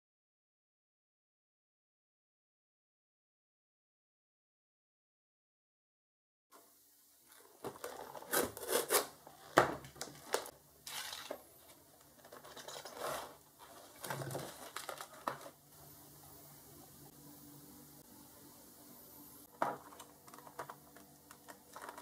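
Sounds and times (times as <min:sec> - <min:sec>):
plastic wrapping crinkling and tearing: 0:07.3 - 0:15.6, 0:19.9 - 0:22.0
blister pack handling: 0:07.4 - 0:15.6, 0:19.8 - 0:22.0.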